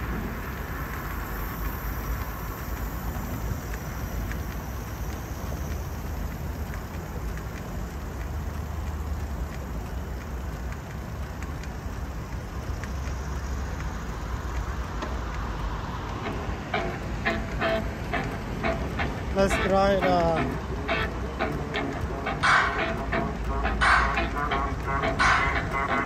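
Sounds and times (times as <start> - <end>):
bicycle tyres on pavement: 0.0 - 26.0
faint ticks: 0.0 - 26.0.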